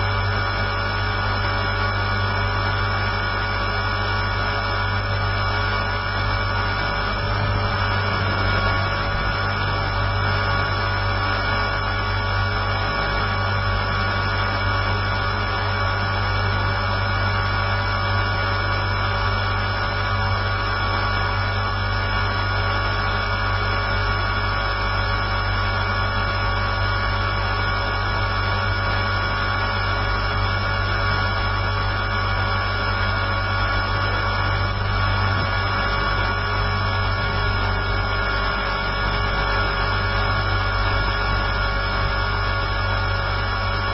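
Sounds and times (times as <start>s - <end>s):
rc helicopter motor whine: 0.0s - 43.9s.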